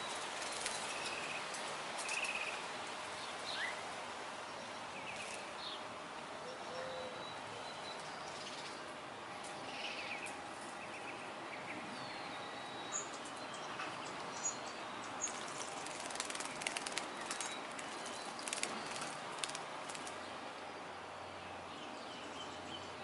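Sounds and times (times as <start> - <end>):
bird splashing in water: 15.3 - 20.2.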